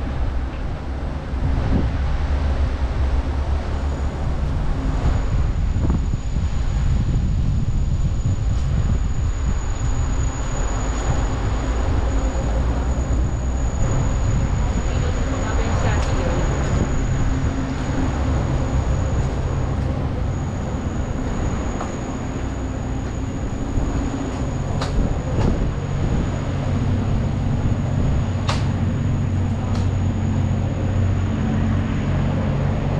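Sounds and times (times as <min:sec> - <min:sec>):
train rumbling: 0:00.0 - 0:32.9.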